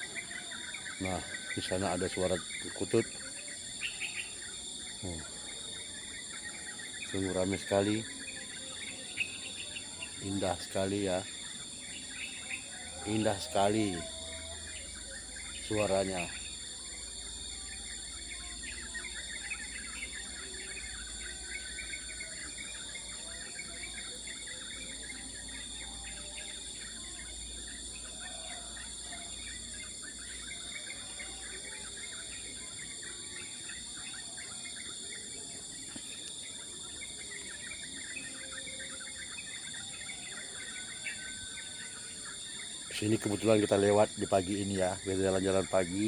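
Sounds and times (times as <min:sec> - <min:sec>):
high-pitched insect drone: 0:00.0 - 0:46.0
small birds chirping: 0:00.0 - 0:46.0.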